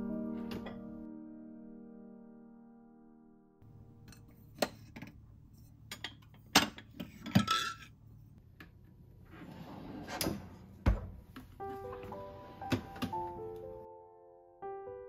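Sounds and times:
ceramic plates clinking: 5.9s - 8.0s.

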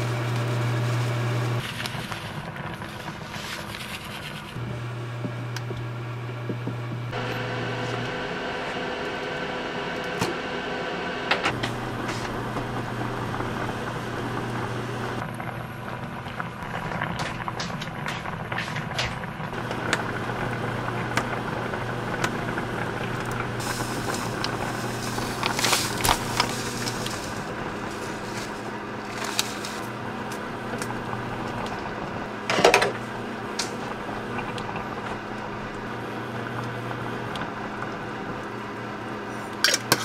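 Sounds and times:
cooktop electrical hum: 0.0s - 40.0s
pot bubbling: 11.5s - 40.0s.

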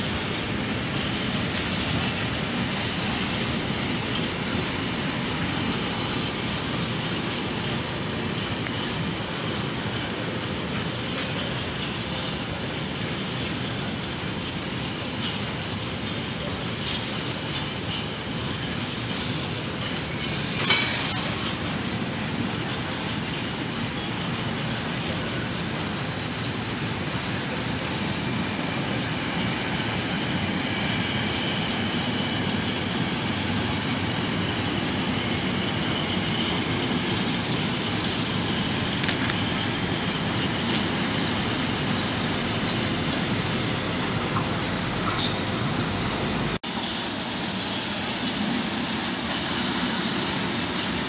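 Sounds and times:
freight train rolling past: 0.0s - 51.0s
high wheel squeal: 20.0s - 21.6s, 28.7s - 46.6s.

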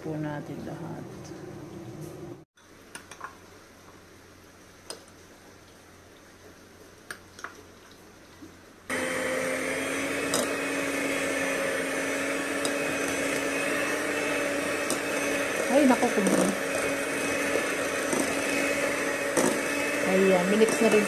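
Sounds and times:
electric mixer humming: 8.9s - 21.0s.

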